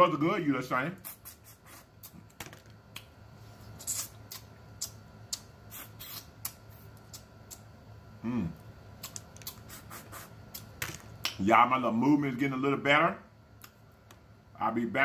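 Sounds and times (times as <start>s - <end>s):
sucking and smacking while eating: 1.0s - 7.7s, 8.6s - 11.4s
person humming: 8.2s - 8.6s.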